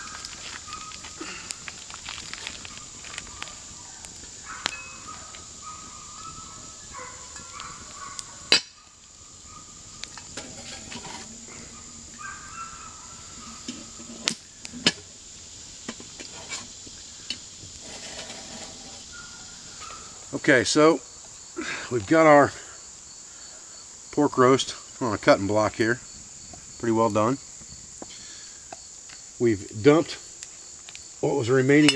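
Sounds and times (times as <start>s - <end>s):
fire crackling clicks: 0.0s - 21.5s, 24.9s - 31.9s
high insect drone: 0.0s - 31.9s.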